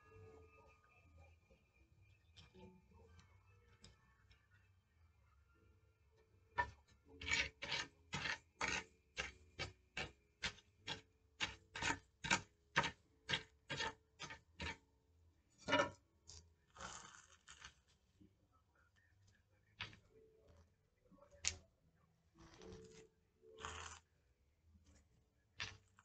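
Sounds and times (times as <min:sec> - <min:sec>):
rasping strokes on paper: 0:07.3 - 0:14.8.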